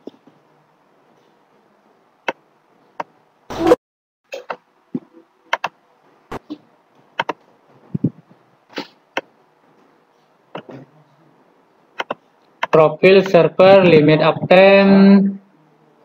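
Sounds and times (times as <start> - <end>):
mouse and keyboard clicks: 5.5 - 5.8, 7.2 - 7.4, 12.0 - 12.8.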